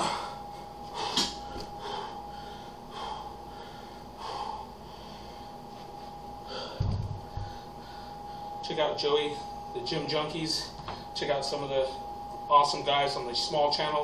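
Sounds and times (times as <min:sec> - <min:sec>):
man breathing forcefully: 0:00.0 - 0:05.7, 0:06.4 - 0:08.6
dumbbell thud: 0:06.8 - 0:07.5.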